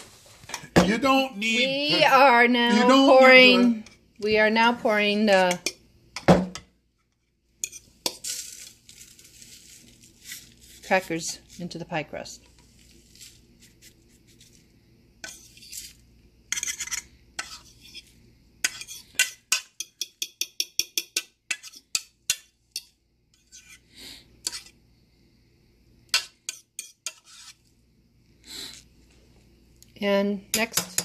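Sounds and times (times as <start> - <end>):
utensil stirring and clinking in dish: 5.4 - 14.5, 15.2 - 24.8, 26.1 - 27.7.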